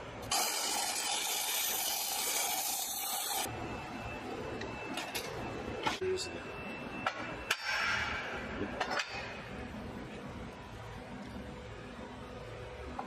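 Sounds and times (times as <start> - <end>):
welding arc hissing and crackling: 0.2 - 3.5.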